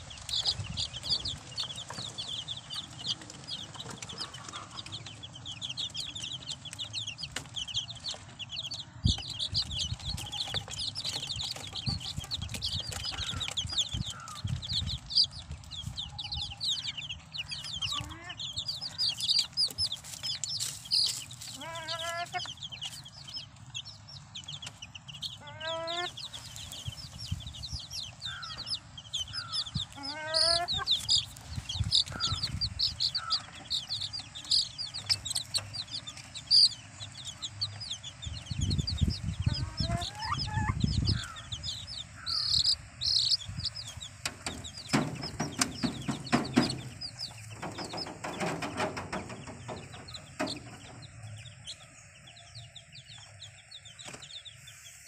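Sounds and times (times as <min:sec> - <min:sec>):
chicks peeping: 0:00.0 - 0:55.0
low scuffling: 0:19.1 - 0:23.1
sharp knocks: 0:44.2 - 0:50.9.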